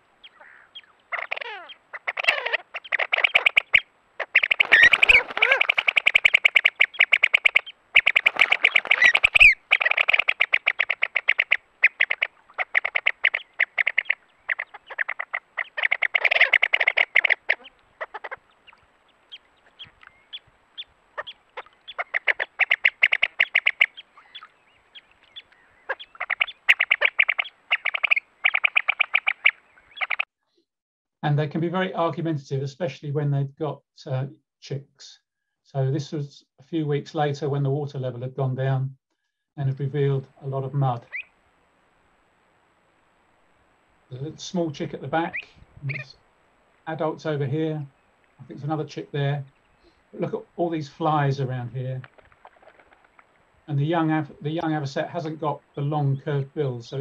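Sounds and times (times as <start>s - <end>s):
avocets calling: 0.0s - 30.3s, 39.6s - 41.4s, 44.1s - 57.0s.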